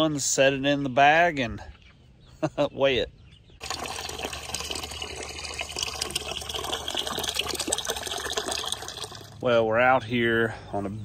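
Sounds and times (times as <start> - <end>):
water pouring and splashing: 3.6 - 9.4.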